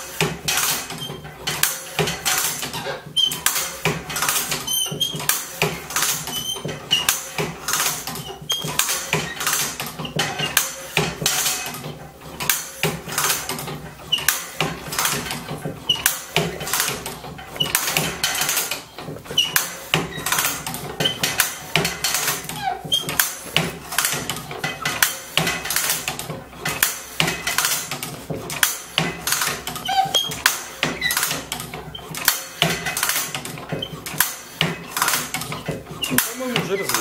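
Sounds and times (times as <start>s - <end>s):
machine metallic clicks and clanks: 0.0s - 37.0s.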